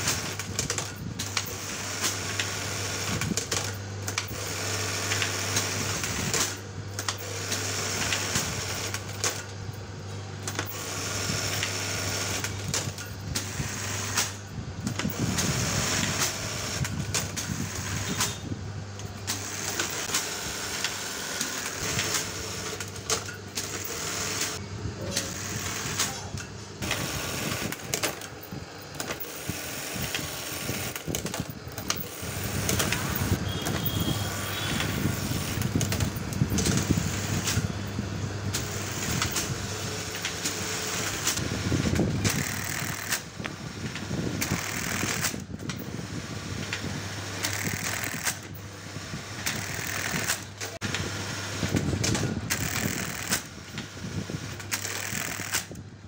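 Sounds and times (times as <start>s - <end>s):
sewing machine motor hum: 0.0s - 56.0s
sewing machine needle clatter: 38.6s - 43.3s, 44.4s - 45.4s, 47.4s - 48.6s, 49.4s - 50.8s, 51.7s - 53.5s, 54.6s - 55.7s.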